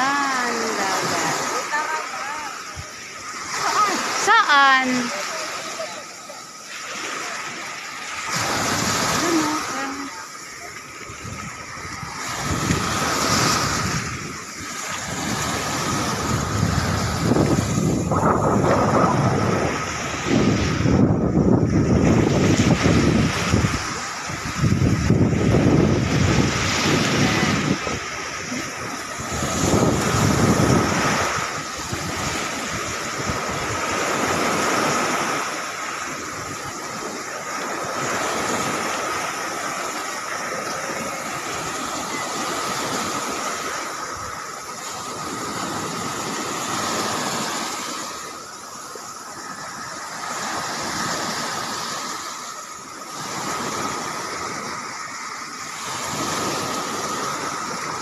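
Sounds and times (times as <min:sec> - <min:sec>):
waves washing onto beach: 0:00.0 - 0:58.0
wind buffeting microphone: 0:11.0 - 0:39.8.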